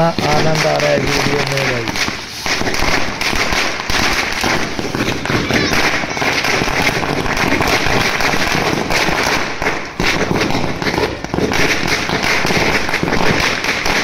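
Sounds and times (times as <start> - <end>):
string of firecrackers going off: 0.0 - 14.0.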